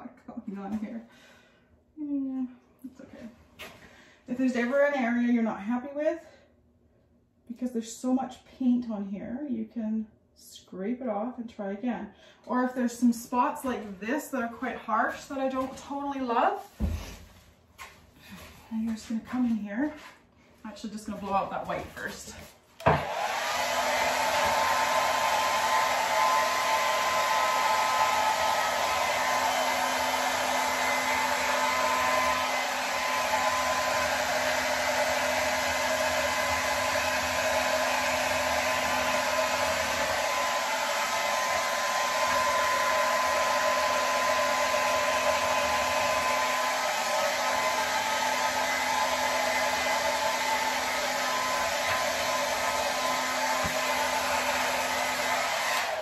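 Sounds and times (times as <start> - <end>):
hair dryer running: 3.6 - 5.4, 21.0 - 56.0.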